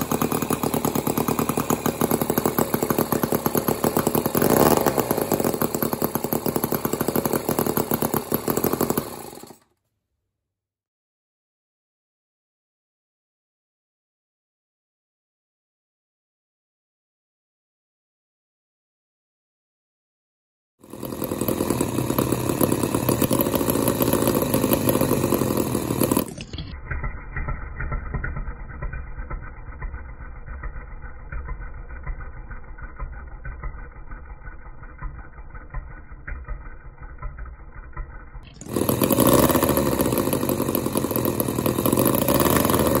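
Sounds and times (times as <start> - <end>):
model engine running: 0.0 - 9.7, 20.8 - 43.0.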